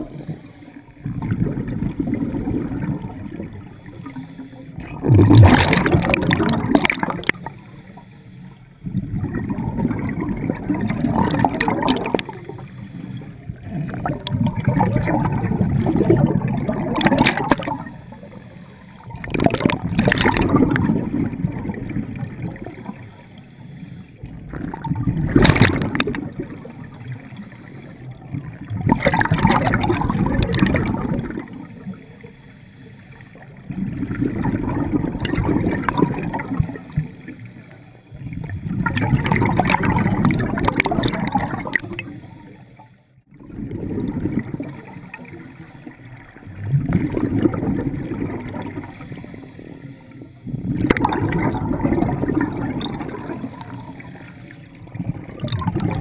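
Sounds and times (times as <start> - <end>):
exhaust bubbles underwater: 0.0 - 32.5, 33.1 - 56.0
regulator inhale hiss: 3.9 - 4.8, 12.6 - 13.4, 23.0 - 24.3, 26.8 - 28.1, 31.8 - 33.5.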